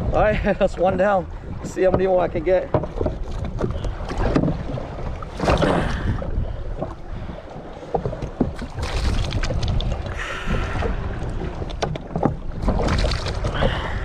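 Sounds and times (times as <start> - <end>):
water slapping jetski: 0.0 - 14.0
wind on microphone: 3.0 - 7.4, 8.0 - 14.0.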